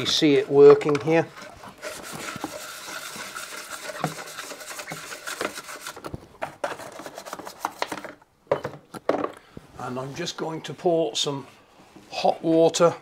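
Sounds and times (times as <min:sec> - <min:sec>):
stiff brush scrubbing plastic: 0:00.0 - 0:08.0.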